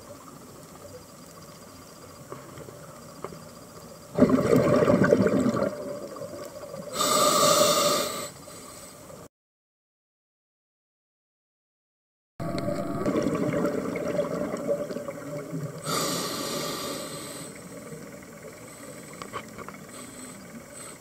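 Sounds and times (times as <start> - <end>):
exhaled bubbles rushing: 4.2 - 6.5, 12.4 - 15.9
diver breathing through regulator: 6.9 - 9.0, 15.8 - 17.9, 18.6 - 21.0.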